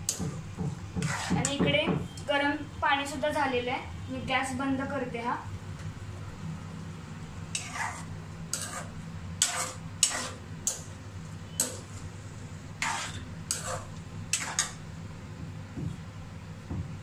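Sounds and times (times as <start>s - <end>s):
spoon scraping frying pan: 1.0s - 1.6s, 7.5s - 10.8s, 12.8s - 14.8s.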